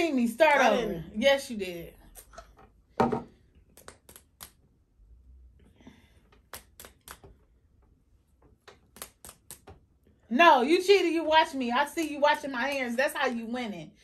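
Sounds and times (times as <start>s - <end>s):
hands clicking and tapping on table: 8.3s - 9.9s.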